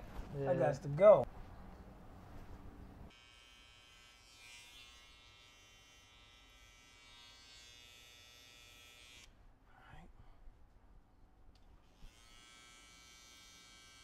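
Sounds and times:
faint electric buzz: 3.0s - 9.3s.

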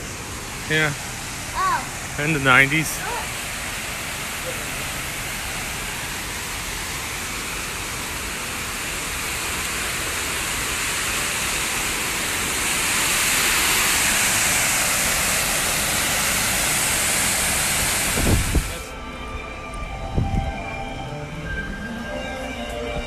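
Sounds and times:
waterfall pouring into pool: 0.0s - 18.9s.

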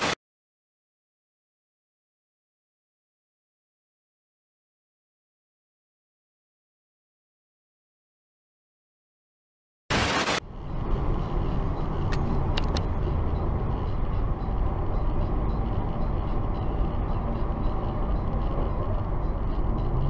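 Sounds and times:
car road and engine noise: 9.9s - 20.0s.

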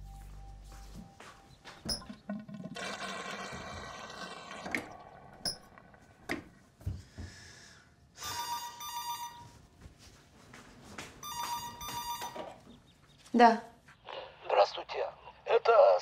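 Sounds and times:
water rushing and draining in pipes: 1.9s - 6.5s.

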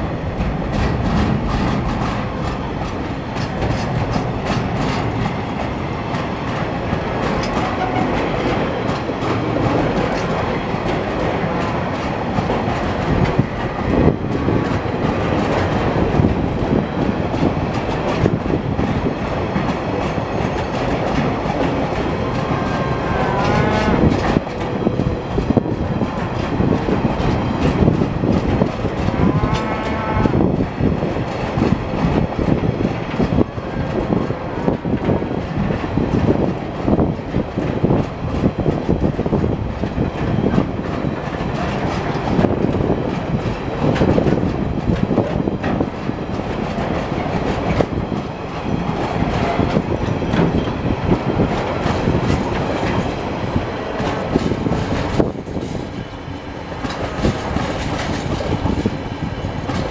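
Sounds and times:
train wheels rumbling on rails: 0.0s - 59.9s
cattle mooing: 29.2s - 30.4s.

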